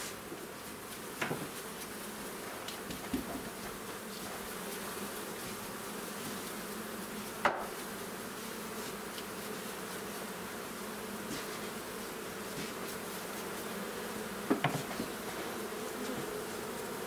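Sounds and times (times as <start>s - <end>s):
bees buzzing: 0.0s - 17.0s
wooden hive frames knocking: 2.6s - 3.9s, 7.4s - 7.8s, 14.3s - 15.3s.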